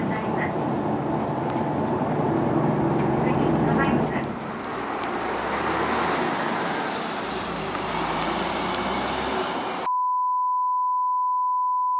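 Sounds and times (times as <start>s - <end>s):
bus diesel engine driving off: 0.0s - 9.9s
steady pure beep tone: 9.9s - 11.9s.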